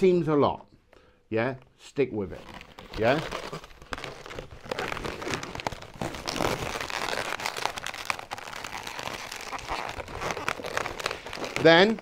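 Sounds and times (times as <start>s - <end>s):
balloons squeaking and rubbing: 2.2s - 12.0s.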